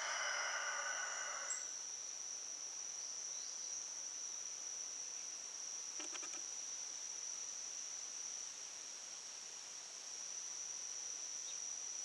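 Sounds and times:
rooster crowing: 0:00.0 - 0:01.7
insects droning: 0:00.0 - 0:12.0.

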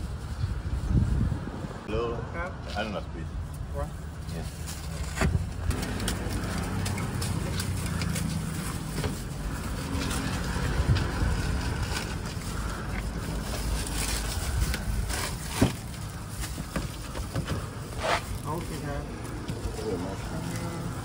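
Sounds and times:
street traffic rumble: 0:00.0 - 0:21.0
plastic bags rustling: 0:05.7 - 0:21.0.

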